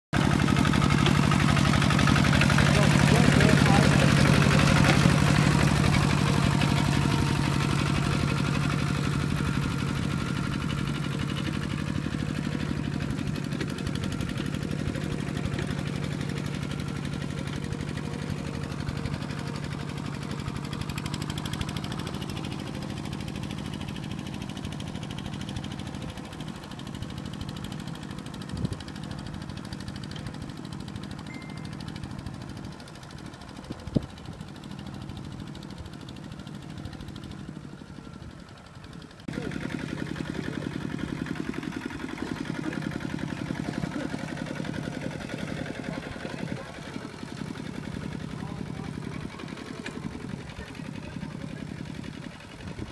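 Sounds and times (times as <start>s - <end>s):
diesel tractor engine running: 0.2s - 52.9s.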